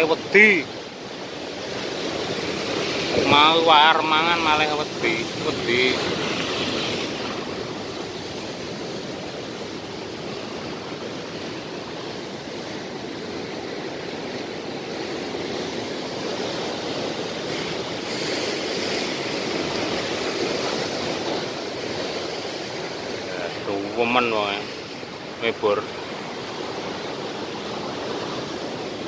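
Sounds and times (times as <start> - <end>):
sea surf washing against rocks: 0.0 - 29.0.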